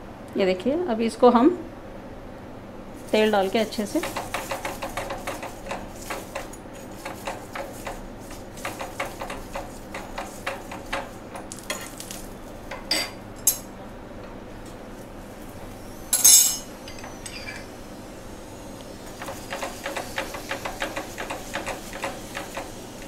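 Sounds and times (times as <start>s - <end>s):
spoon scraping pan: 3.0s - 11.3s
ringing metal clink: 16.2s - 17.6s.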